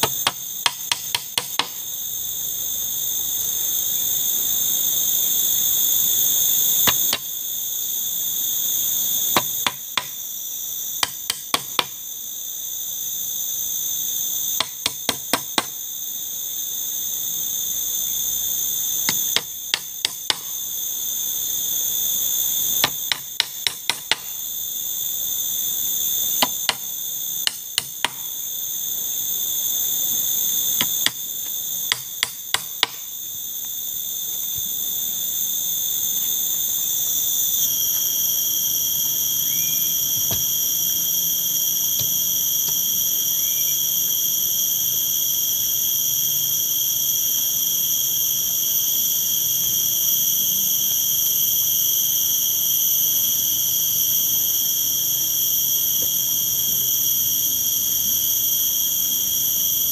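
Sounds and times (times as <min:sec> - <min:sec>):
insects chorus: 0:00.0 - 0:59.9
sharp knocks: 0:31.9 - 0:33.0.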